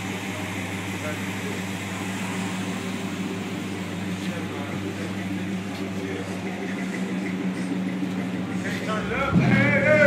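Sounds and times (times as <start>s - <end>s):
car engine idling: 0.0s - 10.0s.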